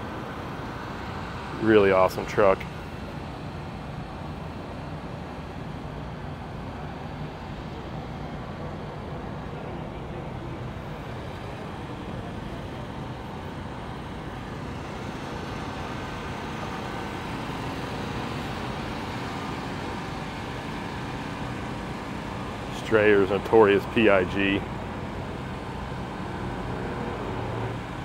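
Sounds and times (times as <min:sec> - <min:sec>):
vehicle rumble with low hum: 0:00.0 - 0:28.0.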